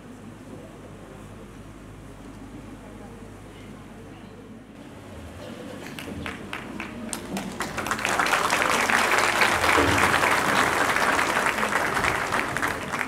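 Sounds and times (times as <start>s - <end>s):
audience applause: 5.8s - 13.0s.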